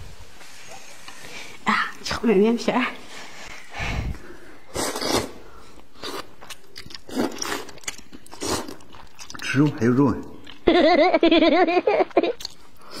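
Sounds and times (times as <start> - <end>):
slurping and chewing noodles: 4.6 - 10.6.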